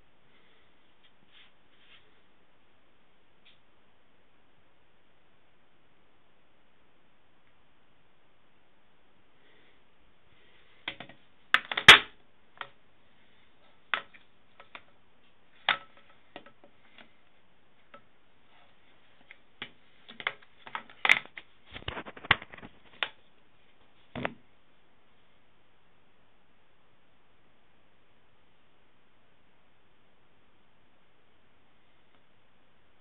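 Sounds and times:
plastic filter clicks and knocks: 0:10.9 - 0:12.8, 0:15.6 - 0:17.1, 0:19.6 - 0:23.2.

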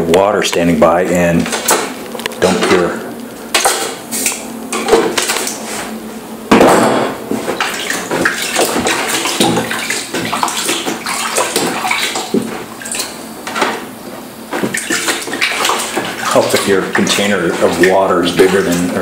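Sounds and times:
water sloshing in a plastic bucket: 0:07.3 - 0:19.0
loud splash: 0:07.6 - 0:13.1.

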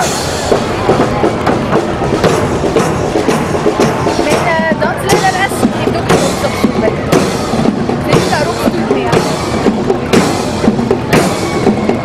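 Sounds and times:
drum kit beat: 0:00.0 - 0:12.0.

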